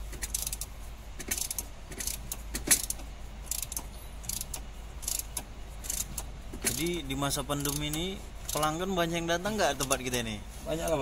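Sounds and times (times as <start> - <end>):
ratchet wrench clicking: 0.1 - 8.9.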